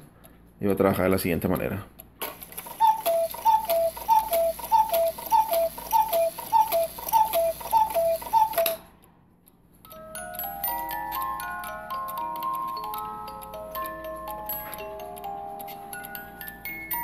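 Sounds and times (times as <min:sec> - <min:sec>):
clock movement clicks: 0:01.6 - 0:08.8
cuckoo clock calling: 0:02.4 - 0:08.9, 0:09.9 - 0:17.0
music box melody: 0:02.6 - 0:08.9, 0:09.8 - 0:17.0.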